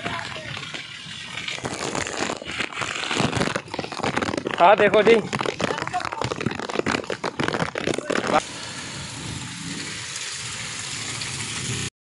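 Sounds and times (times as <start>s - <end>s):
rain crackling and tapping: 0.0s - 11.9s
rain hiss: 8.3s - 11.9s.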